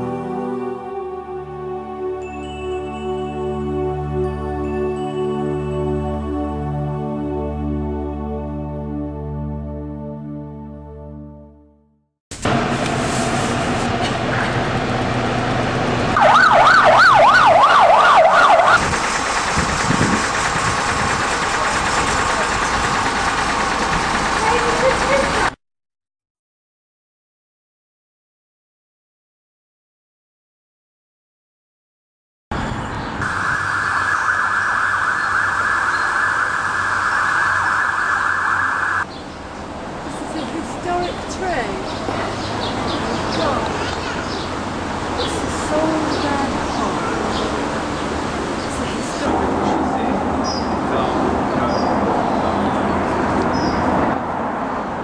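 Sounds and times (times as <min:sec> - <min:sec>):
street traffic: 0:00.0 - 0:08.6, 0:12.3 - 0:25.6, 0:32.5 - 0:55.0
police siren yelping: 0:16.2 - 0:18.9, 0:33.2 - 0:39.1
cicada chorus buzzing: 0:33.2 - 0:39.6.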